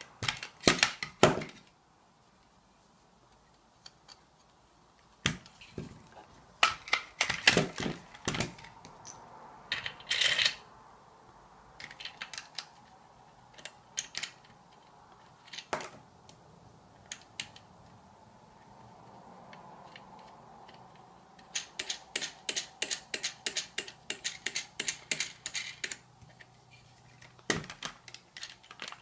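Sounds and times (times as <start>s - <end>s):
hard plastic parts clacking: 0.0s - 1.7s, 5.2s - 8.9s, 9.7s - 10.6s, 11.8s - 16.4s, 19.8s - 29.0s.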